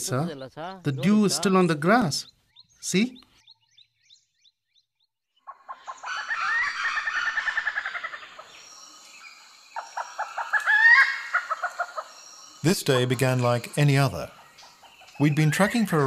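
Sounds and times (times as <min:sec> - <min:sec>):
forest bird calling in stuttering pulses: 0:05.4 - 0:16.0.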